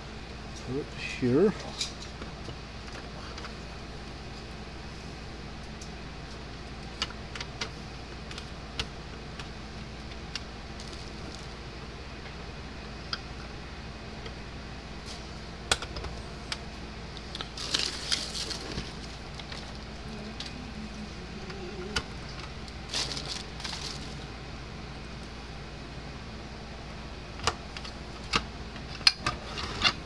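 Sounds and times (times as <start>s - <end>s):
steady low hum: 0.0s - 30.0s
rustling and scraping: 10.8s - 11.6s, 17.2s - 20.6s, 21.4s - 24.3s.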